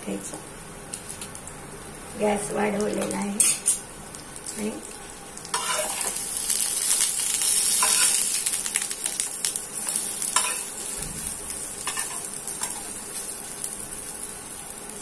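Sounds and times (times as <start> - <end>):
cutlets sizzling in oil: 0.8 - 15.0
spatula scraping a pan: 5.6 - 6.2.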